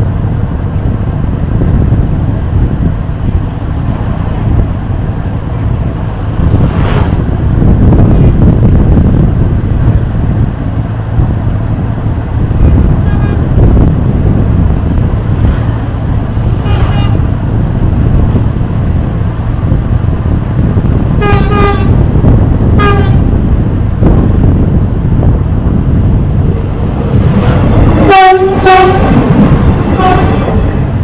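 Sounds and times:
wind and road noise: 0:00.0 - 0:31.0
vehicle horn beeps: 0:13.0 - 0:13.4.

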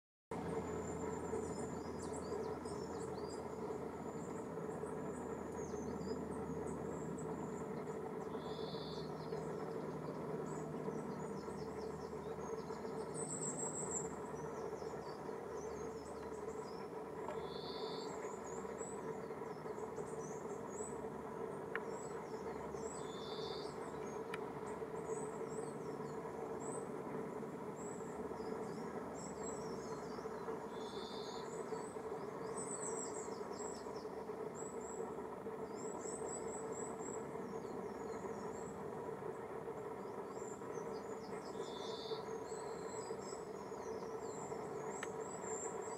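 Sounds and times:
low hum and hiss: 0:00.3 - 0:45.9
small birds chirping: 0:00.4 - 0:45.9.

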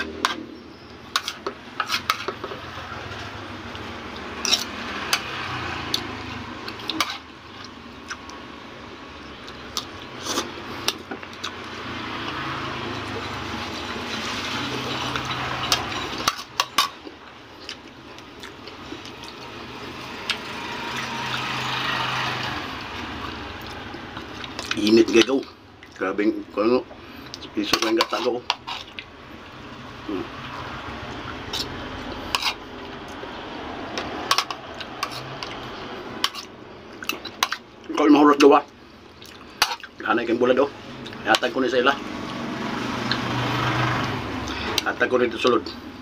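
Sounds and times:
spoon clinking and scraping on plate: 0:01.1 - 0:02.6, 0:04.4 - 0:05.2, 0:14.9 - 0:17.0, 0:27.7 - 0:29.0, 0:31.5 - 0:32.7, 0:34.0 - 0:35.6, 0:36.2 - 0:37.6.

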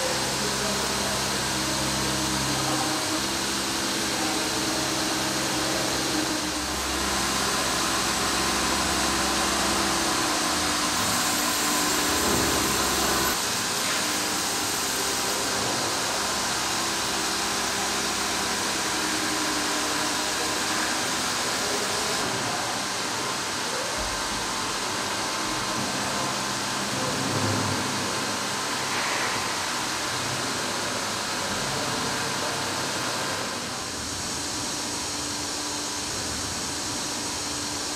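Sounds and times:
low machine hum: 0:00.0 - 0:13.4
stone milling machine cutting: 0:00.0 - 0:23.7.

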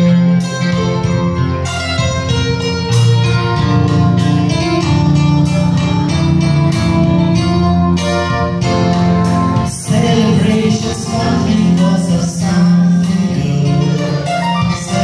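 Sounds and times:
instrumental accompaniment: 0:00.0 - 0:15.0.

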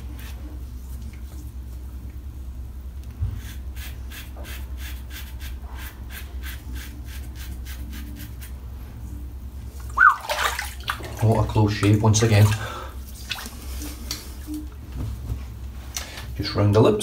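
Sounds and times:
razor scraping stubble: 0:03.4 - 0:08.6.

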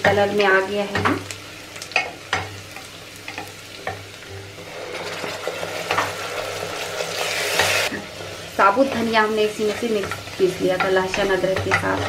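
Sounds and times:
onions sizzling in oil: 0:00.0 - 0:12.0
spatula scraping and knocking pot: 0:08.8 - 0:12.0.

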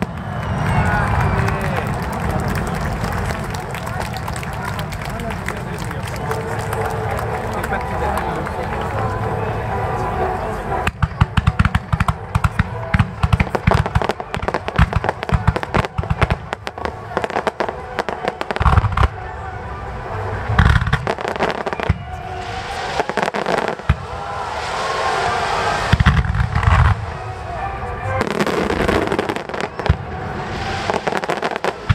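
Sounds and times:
fireworks bangs and crackles: 0:00.0 - 0:31.9
heavy fireworks booms: 0:20.4 - 0:31.9.

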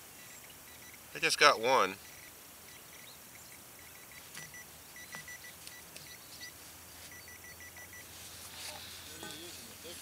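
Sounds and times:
pinpointer high beeps: 0:00.2 - 0:01.0, 0:02.0 - 0:08.1
faint clicks and soil scrapes: 0:02.9 - 0:10.0.

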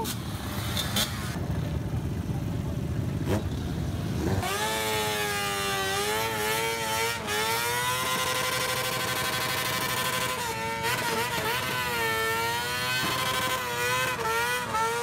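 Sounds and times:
small engine revving: 0:03.2 - 0:15.0.

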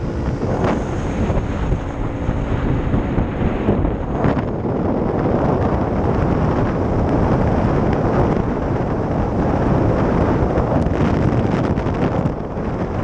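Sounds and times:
motorcycle running: 0:00.0 - 0:13.0
wind buffeting microphone: 0:00.0 - 0:13.0.

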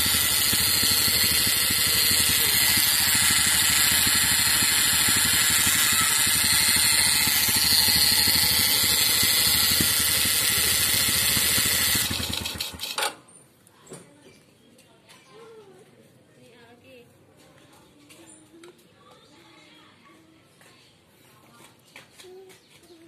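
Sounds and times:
electric fish stunner buzzing: 0:00.0 - 0:12.8.

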